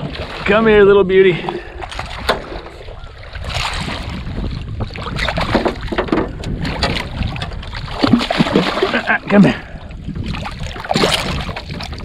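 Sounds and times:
wind rumbling on microphone: 0.0 - 12.0
fish splashing at water surface: 6.7 - 9.6.

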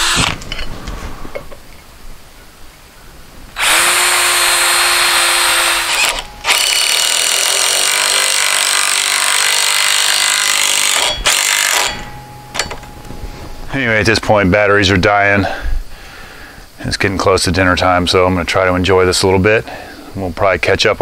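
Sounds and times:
cordless drill boring into wood: 0.0 - 0.4, 3.6 - 12.0.

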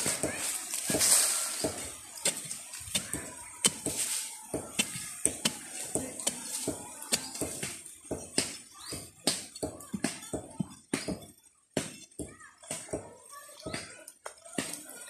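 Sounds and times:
digging tool striking soil: 0.0 - 9.6.

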